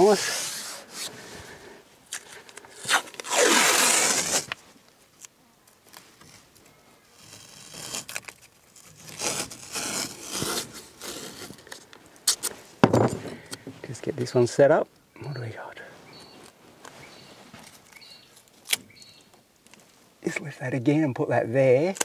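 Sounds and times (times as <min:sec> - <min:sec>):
tape rustling and rubbing: 0:00.0 - 0:01.2, 0:02.1 - 0:12.7
masking tape ripping off roll: 0:02.1 - 0:04.6, 0:07.1 - 0:12.5.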